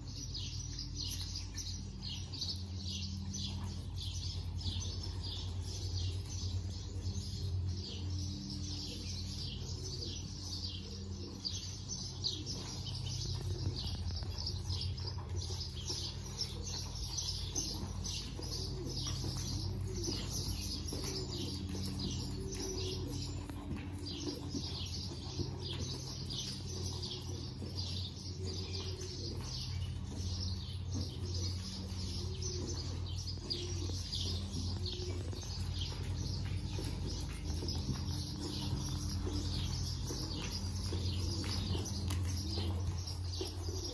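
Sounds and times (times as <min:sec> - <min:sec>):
birds chirping: 0:00.0 - 0:43.9
steady low hum: 0:00.0 - 0:43.9
low wavering cooing calls: 0:16.0 - 0:43.9.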